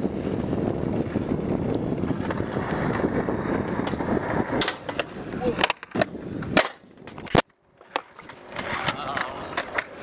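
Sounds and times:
wind buffeting microphone: 0.0 - 7.4.

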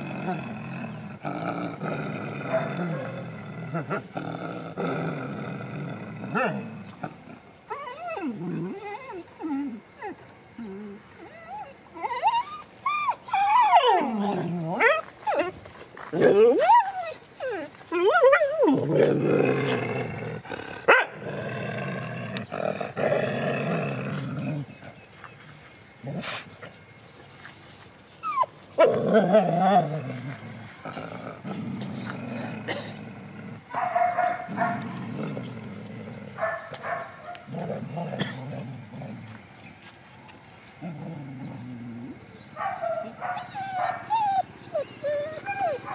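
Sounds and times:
dogs growling: 0.0 - 25.0, 28.1 - 39.4, 40.7 - 45.9
dogs whining: 7.7 - 19.0, 27.2 - 30.2, 40.8 - 45.9.

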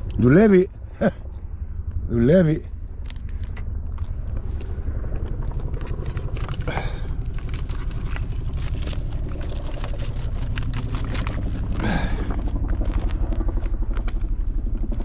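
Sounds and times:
steady low rumble: 0.0 - 15.0
rope pulled through hands: 3.0 - 14.2
clicks and rustling of keepnet: 5.5 - 14.0.

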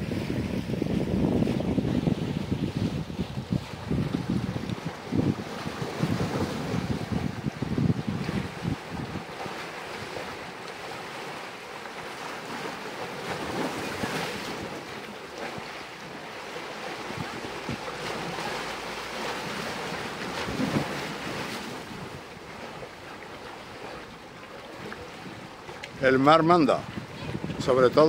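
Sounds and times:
wind buffeting microphone: 0.0 - 10.6, 16.9 - 28.0
sea water washing on rocks: 0.0 - 28.0.

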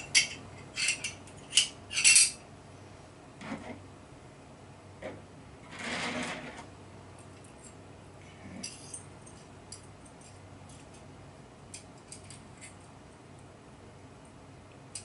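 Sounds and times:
small steel parts clinking: 0.1 - 2.4.

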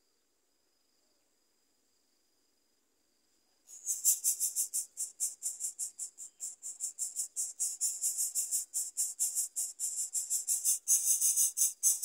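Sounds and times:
nestlings cheeping: 3.7 - 12.0.

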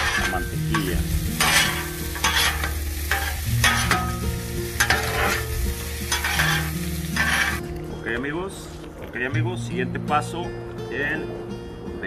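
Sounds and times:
metal spatulas scraping griddle: 0.0 - 7.7
potatoes sizzling in oil: 0.0 - 7.7.

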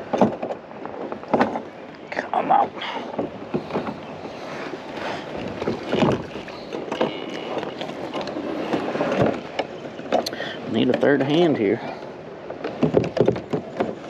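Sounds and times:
knocks in a kayak: 0.0 - 1.7, 3.0 - 4.0, 5.4 - 11.5, 12.5 - 14.0
wind and water noise: 0.0 - 14.0.

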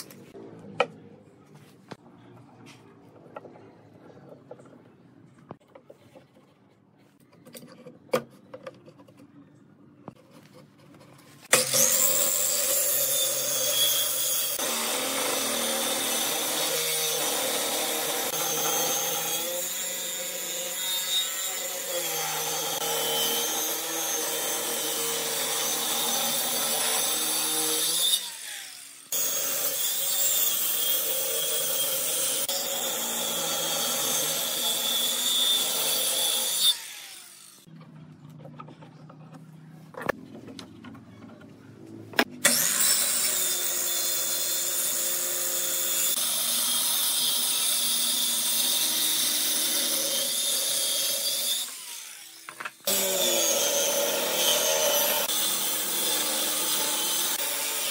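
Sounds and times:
circular saw cutting wood: 11.4 - 37.7, 42.4 - 57.9.

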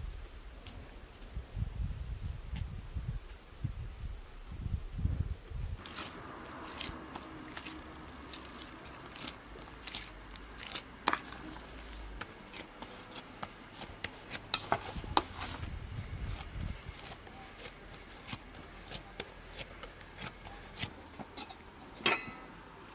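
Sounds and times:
hands kneading dough: 5.7 - 22.0.

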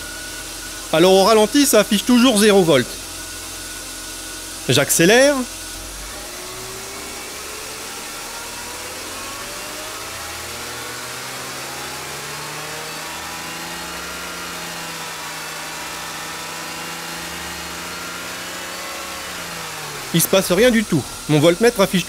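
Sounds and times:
car engine revving: 4.8 - 22.0.

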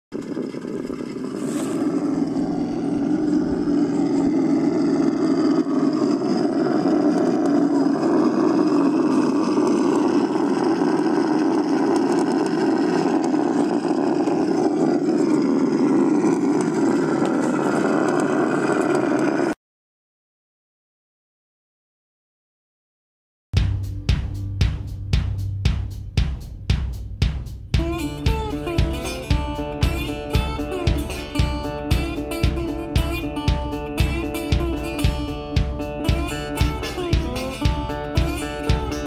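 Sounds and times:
rc car electric motor drone: 0.2 - 19.6.

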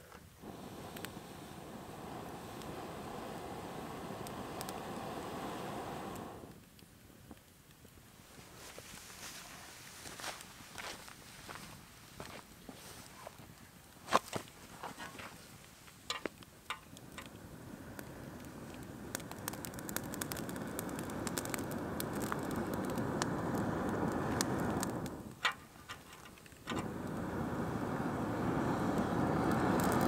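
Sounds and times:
burning wood crackling: 0.0 - 30.0
forced air rushing: 0.4 - 6.6, 17.0 - 25.4, 26.7 - 30.0.

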